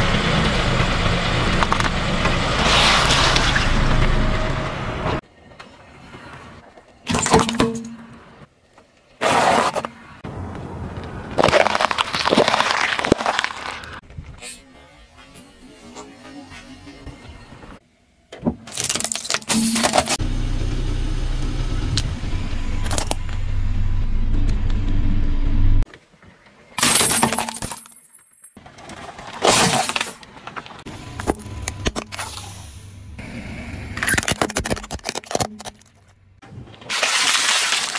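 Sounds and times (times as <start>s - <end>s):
car tyre crushing objects: 9.2s - 14.0s, 28.6s - 32.2s, 34.0s - 37.9s
tyre crushing peppers crackling: 11.4s - 14.0s.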